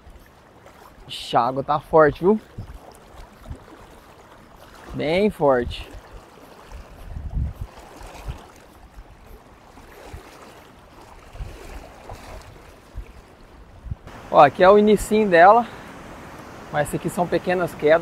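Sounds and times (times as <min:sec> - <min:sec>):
fast-flowing river rushing: 0:14.1 - 0:18.0.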